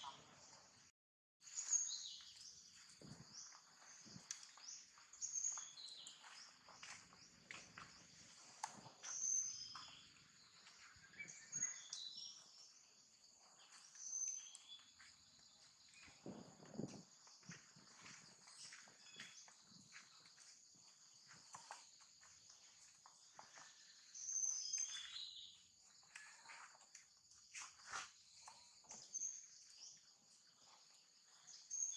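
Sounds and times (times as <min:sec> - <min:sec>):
small birds chirping: 0:00.0 - 0:31.9.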